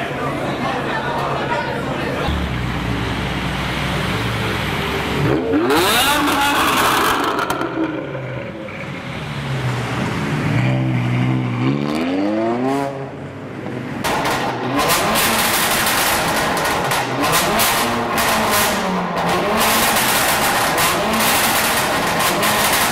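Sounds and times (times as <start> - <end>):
car engines revving: 1.8 - 22.9
car accelerating away: 2.2 - 13.2.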